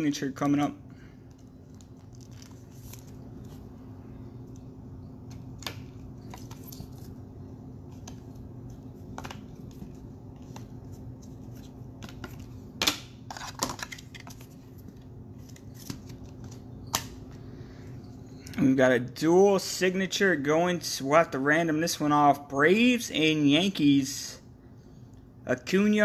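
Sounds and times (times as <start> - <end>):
low hum: 0.0 - 12.8.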